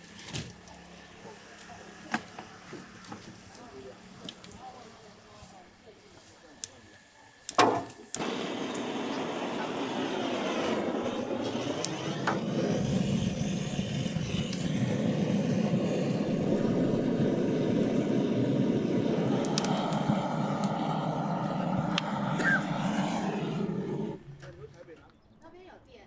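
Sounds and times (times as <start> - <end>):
blowtorch hissing: 6.4 - 24.3
sharp clicks: 19.4 - 20.0.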